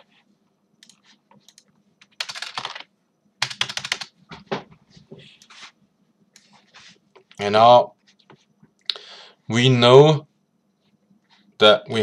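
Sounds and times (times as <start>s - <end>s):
computer keyboard typing: 0.8s - 4.2s.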